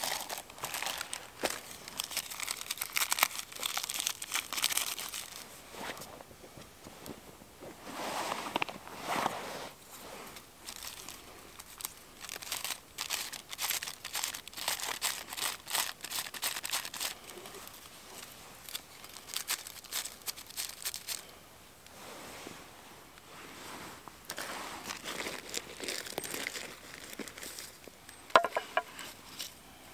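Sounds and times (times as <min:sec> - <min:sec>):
birch bark crinkling: 0:00.0 - 0:06.2, 0:09.8 - 0:21.4, 0:24.0 - 0:29.7.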